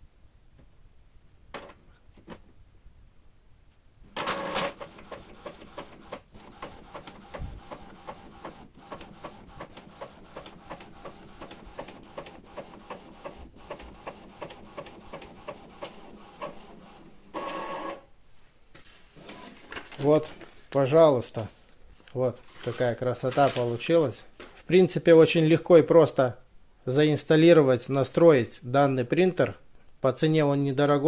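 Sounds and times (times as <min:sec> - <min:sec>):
printer whirring: 0:04.1 - 0:18.1, 0:19.2 - 0:19.5
printer carriage shuttling: 0:04.2 - 0:18.0.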